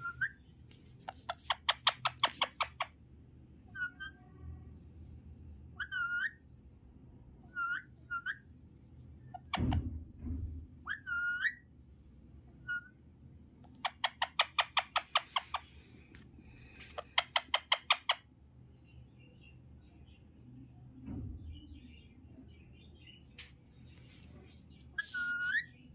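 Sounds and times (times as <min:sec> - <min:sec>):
parakeet whistled chirps: 0:00.0 - 0:00.4, 0:03.7 - 0:04.2, 0:05.8 - 0:06.4, 0:07.4 - 0:08.4, 0:10.8 - 0:11.6, 0:25.0 - 0:25.8
parakeet rapid chattering calls: 0:01.1 - 0:03.0, 0:13.7 - 0:15.7, 0:17.0 - 0:18.2
muffled low bump: 0:09.6 - 0:10.8.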